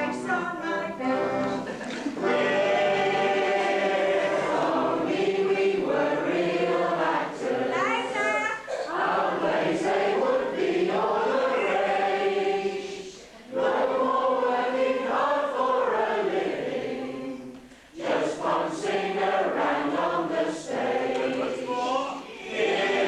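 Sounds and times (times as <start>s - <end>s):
group singing together: 1.1s - 23.0s
singers breathing: 17.6s - 18.0s.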